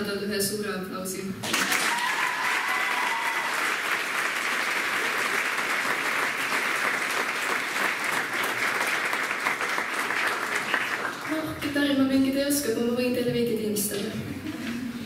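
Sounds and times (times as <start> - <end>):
audience applauding: 1.4 - 11.4.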